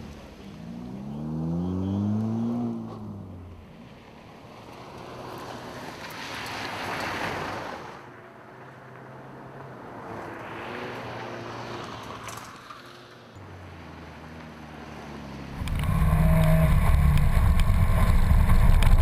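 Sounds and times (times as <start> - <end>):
faint car engine: 0.0 - 5.9, 8.0 - 19.0
tyres on gravel: 15.6 - 19.0.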